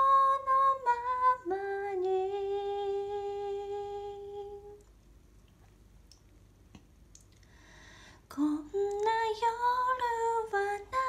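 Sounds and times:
faint clicks: 8.8 - 9.3.

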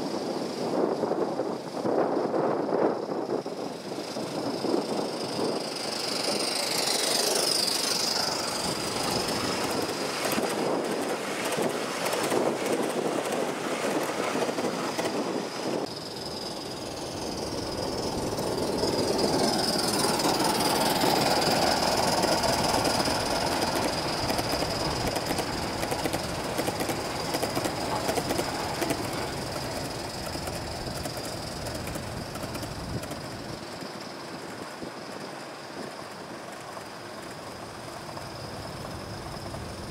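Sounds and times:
model train wheels clicking on track: 1.8 - 39.9
wheel squeal on curve: 4.4 - 10.4.

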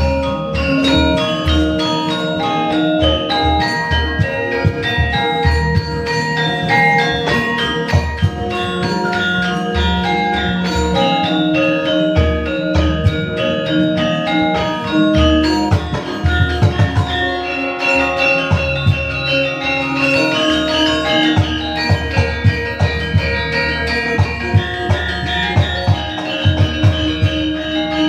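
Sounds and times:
drum strokes: 0.0 - 28.0
metallophones and gongs ringing: 0.0 - 28.0.

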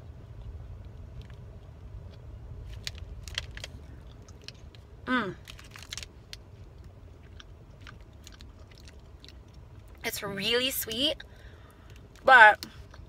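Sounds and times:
low car rumble: 0.0 - 13.0
person chewing crunchy food: 0.3 - 10.0
plastic wrapper crinkling: 2.6 - 4.8, 5.4 - 10.0
person humming mmm: 5.1 - 5.4.

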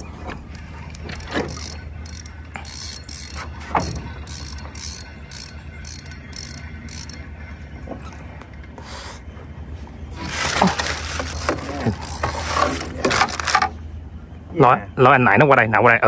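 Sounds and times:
fishing reel ratcheting: 0.5 - 7.2, 10.8 - 13.6.

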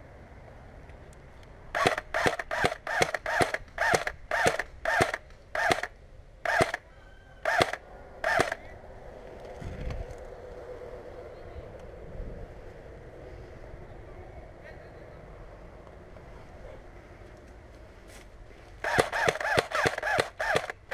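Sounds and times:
airsoft rifle shots: 1.7 - 6.8, 7.4 - 8.6, 18.8 - 20.9.

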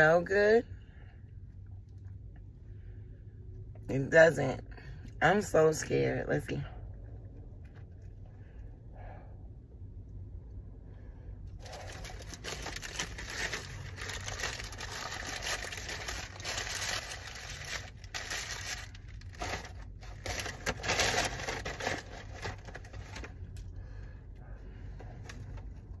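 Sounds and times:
paper crinkling and rustling: 11.6 - 23.5.

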